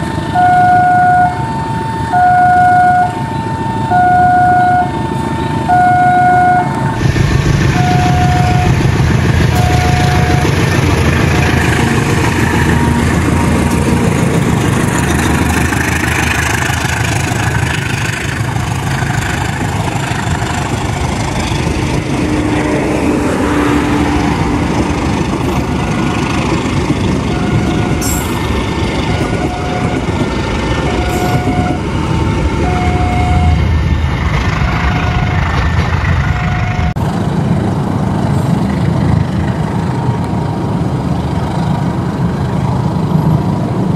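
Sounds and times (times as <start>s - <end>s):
train wheels rumbling on rails: 0.0s - 43.9s.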